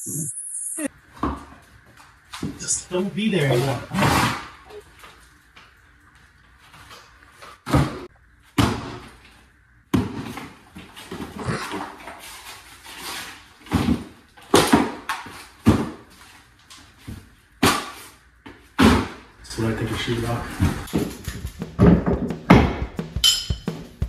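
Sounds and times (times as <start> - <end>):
drywall crumbling and scraping: 6.7 - 19.3.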